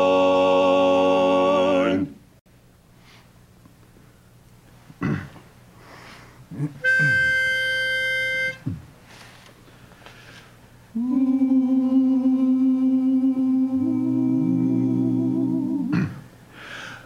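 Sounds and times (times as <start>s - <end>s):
quartet singing a held chord: 0.0s - 2.2s, 10.9s - 16.2s
pitch pipe note: 6.8s - 8.6s
short vocal sounds: 10.9s - 16.3s.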